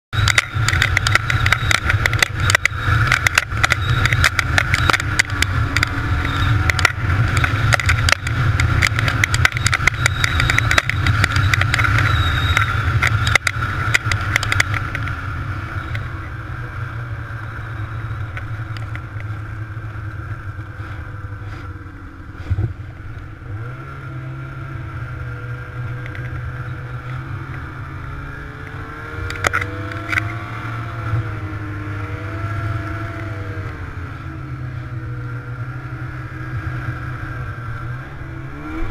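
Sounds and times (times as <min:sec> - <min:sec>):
knocks and rattles over bumps: 0:00.2 - 0:15.2
snowmobile engine running: 0:00.2 - 0:38.9.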